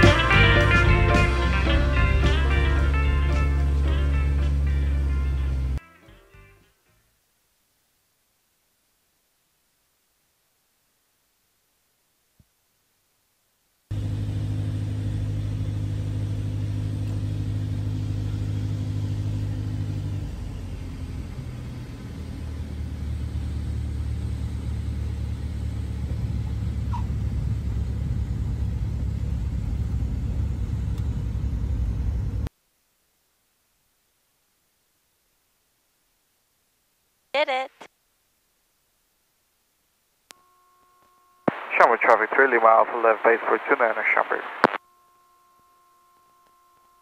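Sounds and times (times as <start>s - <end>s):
aircraft engine and propeller droning: 0.0s - 5.8s, 13.9s - 32.5s.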